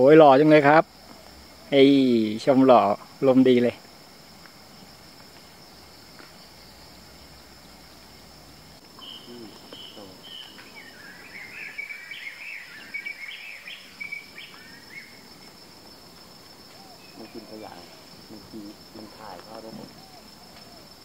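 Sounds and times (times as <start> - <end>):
high insect drone: 0.0 - 21.0
bird chirping calls: 6.2 - 15.6, 16.7 - 20.9.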